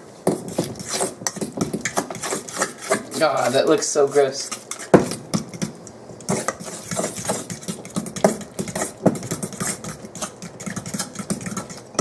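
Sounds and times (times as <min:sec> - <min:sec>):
fork stirring wet mash: 0:00.2 - 0:12.0
fork clinking and scraping bowl: 0:00.5 - 0:12.0.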